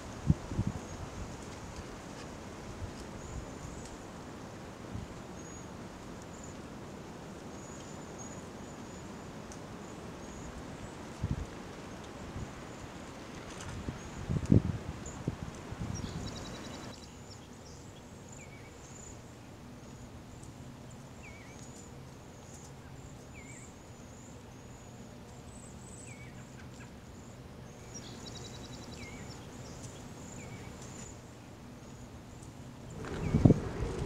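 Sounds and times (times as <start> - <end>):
sparrows twittering: 15.9 - 19.1, 32.9 - 33.9
low bird chirp: 32.9 - 34.0.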